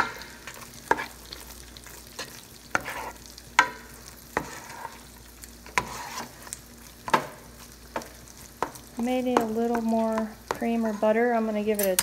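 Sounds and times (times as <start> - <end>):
steaks sizzling in oil: 0.0 - 12.0
utensil scraping a pot: 2.2 - 3.7, 4.3 - 6.6, 9.7 - 12.0.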